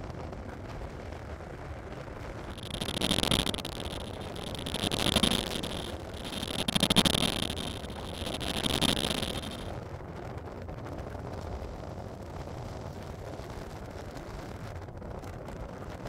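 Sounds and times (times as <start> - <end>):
high-pitched hiss: 2.5 - 9.7.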